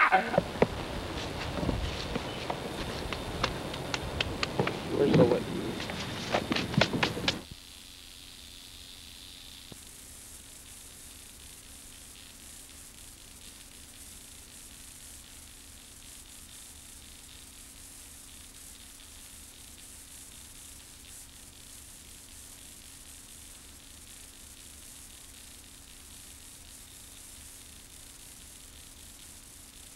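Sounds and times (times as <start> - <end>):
low hum: 0.0 - 7.4
tape hiss: 0.0 - 29.9.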